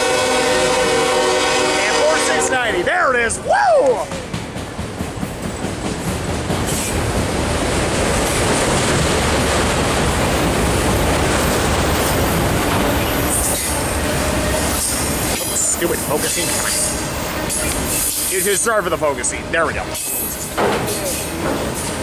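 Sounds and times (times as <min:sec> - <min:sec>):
freight cars rumbling on rails: 0:00.0 - 0:22.0.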